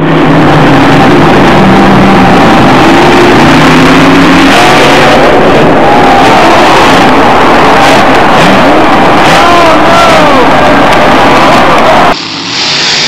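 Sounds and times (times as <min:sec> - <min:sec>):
truck engine revving: 0:00.0 - 0:13.0.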